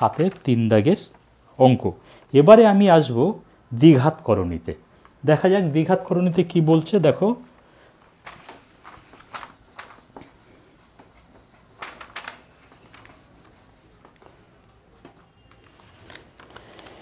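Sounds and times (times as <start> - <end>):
eraser rubbing on whiteboard: 8.4 - 14.2
marker writing on whiteboard: 8.4 - 14.2.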